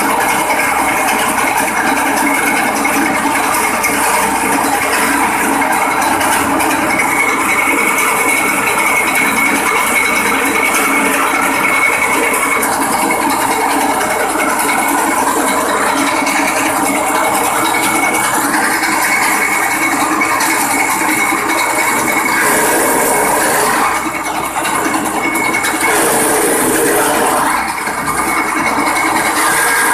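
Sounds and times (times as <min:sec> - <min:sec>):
grass chopper engine running: 0:00.0 - 0:29.9
high whine: 0:02.9 - 0:29.9.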